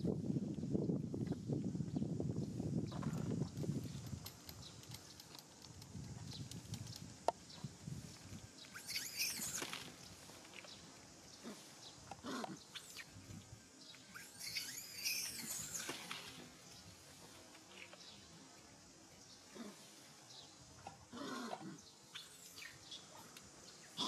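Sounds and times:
baby monkey squealing: 0:08.8 - 0:09.7, 0:14.1 - 0:15.9.

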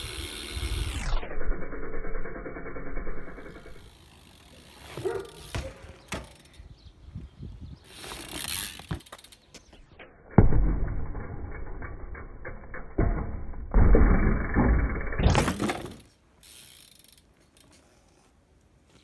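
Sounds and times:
bike freewheel hub ratcheting: 0:00.0 - 0:06.7, 0:07.9 - 0:09.5, 0:11.2 - 0:18.0
clicks and knocks of bike parts: 0:04.8 - 0:06.6, 0:10.8 - 0:16.2.

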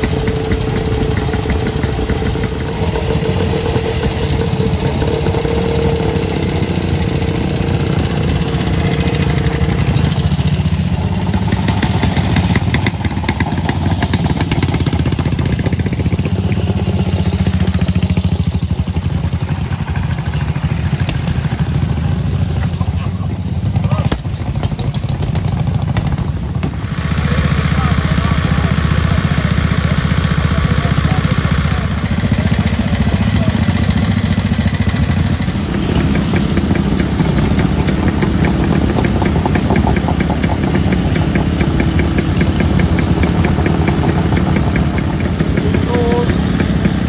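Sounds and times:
steady whine: 0:00.0 - 0:22.8
motorcycle engines idling and pulling away: 0:00.0 - 0:47.0.

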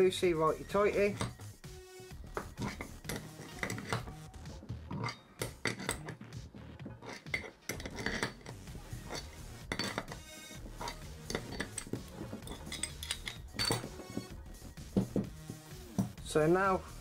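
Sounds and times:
spanner clinking on metal nut: 0:01.0 - 0:01.6, 0:02.4 - 0:04.2, 0:04.9 - 0:06.2, 0:06.9 - 0:14.3.

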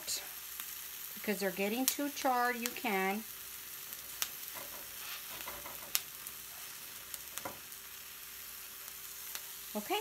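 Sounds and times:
vegetables sizzling in a skillet: 0:00.0 - 0:10.0
tongs clicking against a pan: 0:04.2 - 0:06.3.

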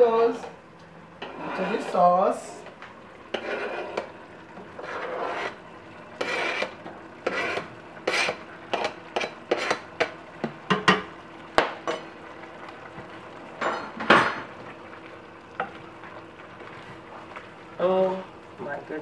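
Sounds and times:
spoon scraping cutting board: 0:03.3 - 0:04.1, 0:04.8 - 0:05.6, 0:06.2 - 0:09.9.

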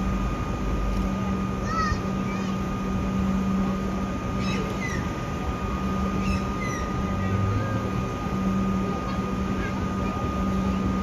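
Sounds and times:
electric train hum and whine: 0:00.0 - 0:11.0
birds chirping: 0:04.3 - 0:05.2, 0:06.0 - 0:07.6.

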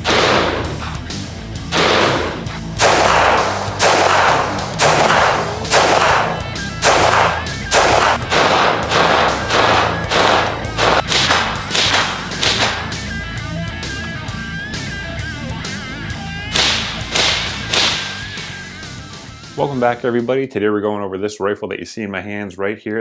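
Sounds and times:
rifle shots: 0:00.0 - 0:00.8, 0:01.7 - 0:13.0, 0:16.5 - 0:18.3
rock music with bass: 0:00.0 - 0:20.4.

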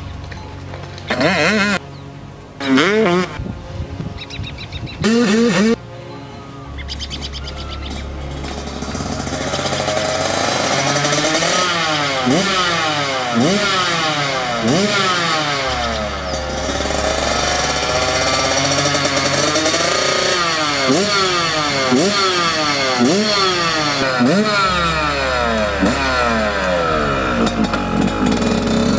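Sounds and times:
dirt bike engine revving hard: 0:01.1 - 0:01.8, 0:05.0 - 0:05.8, 0:07.4 - 0:28.9.

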